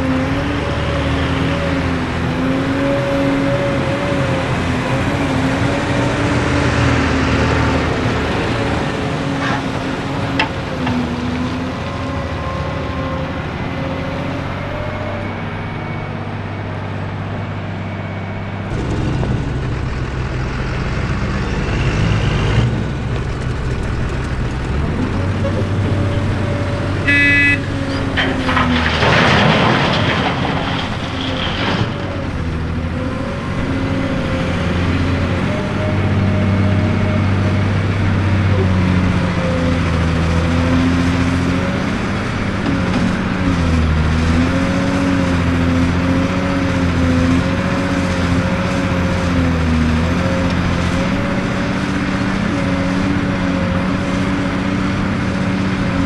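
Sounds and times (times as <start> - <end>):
excavator diesel engine: 0.0 - 56.0
short horn toot: 27.0 - 27.9.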